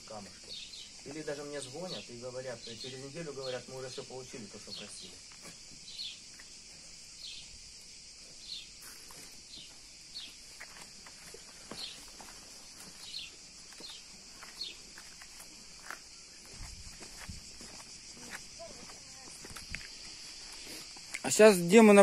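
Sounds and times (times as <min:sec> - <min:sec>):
birds chirping: 0:00.0 - 0:21.1
steady high hiss: 0:00.0 - 0:22.0
footsteps on paving: 0:08.8 - 0:21.3.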